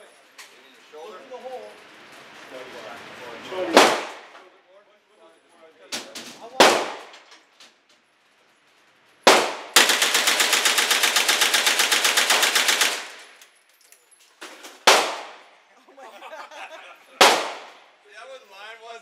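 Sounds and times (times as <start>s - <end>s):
gunshot: 3.7s - 4.4s, 6.0s - 7.3s, 9.3s - 9.9s, 14.8s - 15.5s, 17.2s - 17.8s
automatic gunfire burst: 3.8s - 4.3s, 6.6s - 7.1s, 9.3s - 13.4s, 14.9s - 15.4s, 17.2s - 17.8s.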